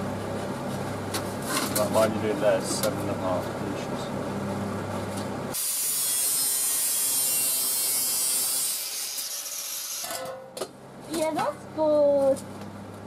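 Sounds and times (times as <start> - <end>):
angle grinder cutting steel: 5.6 - 10.2.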